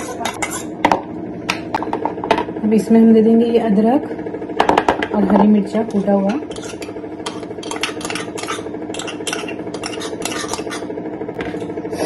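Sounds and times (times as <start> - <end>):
metal spoon scraping stone mortar: 0.0 - 0.8, 5.8 - 10.9.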